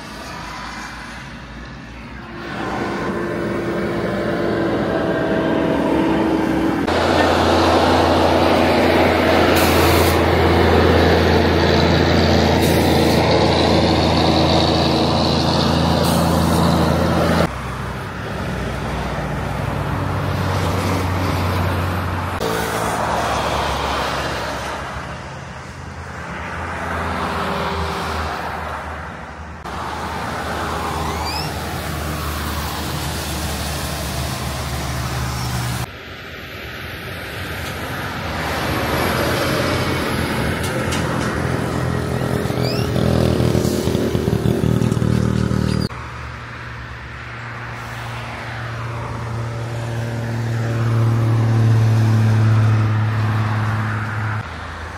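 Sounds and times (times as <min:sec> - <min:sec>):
cars and trucks passing: 0:00.0 - 0:54.9
truck diesel engine running: 0:02.1 - 0:23.2
short air hisses: 0:09.5 - 0:10.2.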